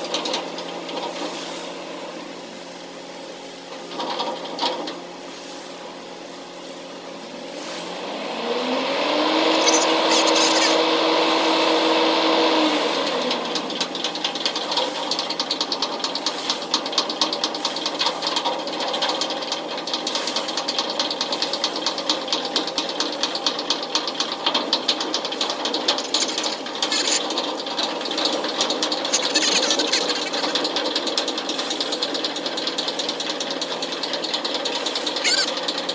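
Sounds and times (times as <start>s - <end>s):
ship diesel engine clattering: 13.6s - 35.9s.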